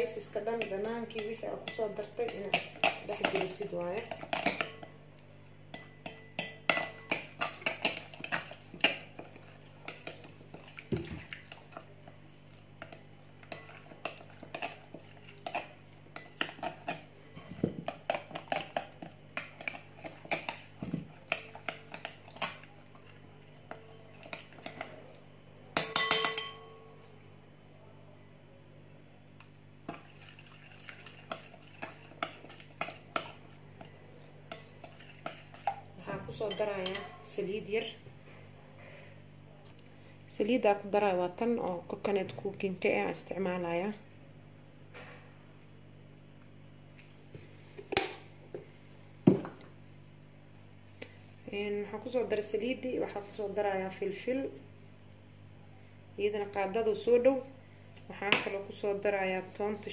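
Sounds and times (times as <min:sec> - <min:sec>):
spoon clinking against glass bowl: 0:25.8 - 0:26.9, 0:36.5 - 0:37.3.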